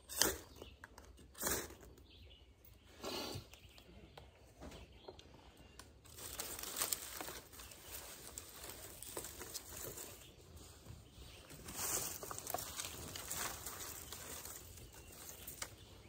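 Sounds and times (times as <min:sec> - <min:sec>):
dry sticks rustling and clattering: 0:04.7 - 0:16.0.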